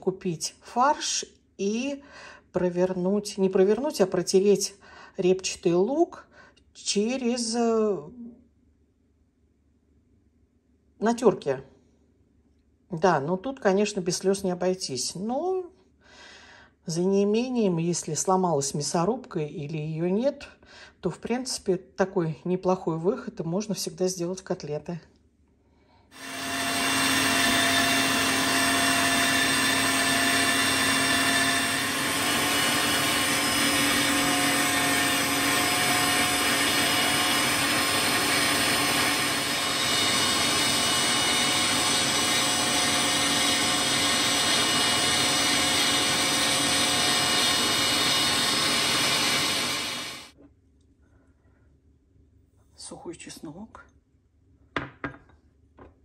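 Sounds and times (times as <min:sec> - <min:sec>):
electric meat grinder running: 0:26.2 - 0:50.4.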